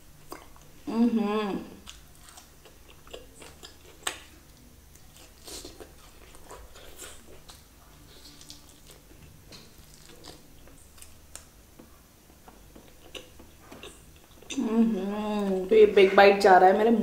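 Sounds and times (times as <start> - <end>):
close chewing: 1.8 - 11.5, 12.4 - 14.6
bread tearing by hand: 5.0 - 11.5.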